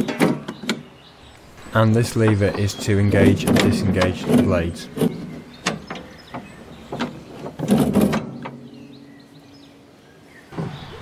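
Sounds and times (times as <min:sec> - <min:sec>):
sliding metal clunk: 0:01.6 - 0:08.8.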